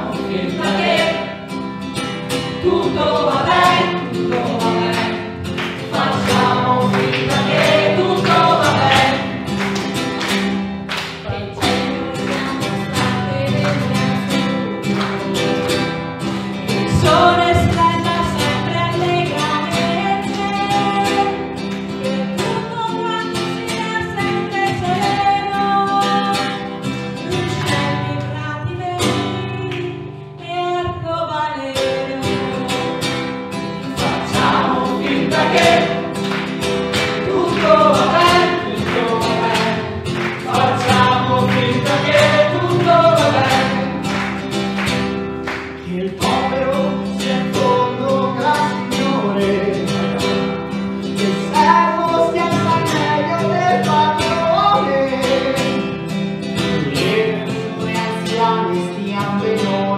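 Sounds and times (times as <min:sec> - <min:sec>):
voices singing together: 0:00.0 - 0:01.7, 0:02.3 - 0:10.3, 0:11.2 - 0:26.6, 0:33.8 - 0:50.6, 0:51.2 - 0:56.0
acoustic guitar: 0:00.0 - 0:59.9.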